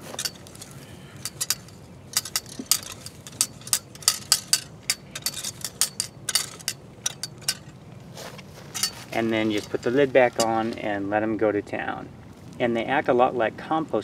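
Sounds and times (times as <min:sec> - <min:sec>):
rake scraping through soil: 0:00.0 - 0:10.8.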